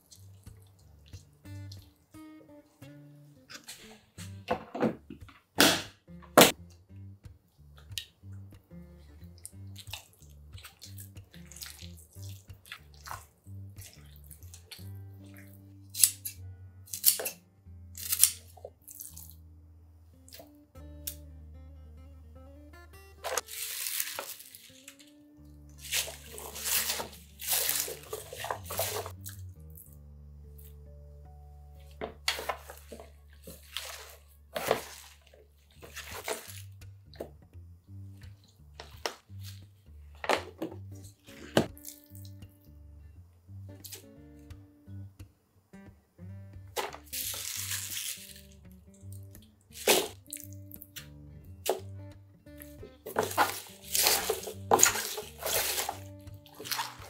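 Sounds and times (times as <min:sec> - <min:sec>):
soft background music: 0:00.0 - 0:57.0
wet rustling and squelching: 0:09.4 - 0:16.3, 0:23.2 - 0:29.9, 0:32.1 - 0:37.3, 0:38.2 - 0:42.3, 0:46.8 - 0:50.8, 0:52.6 - 0:57.0
spatula squelching paste in bowl: 0:25.8 - 0:29.2, 0:49.7 - 0:50.2, 0:53.0 - 0:57.0.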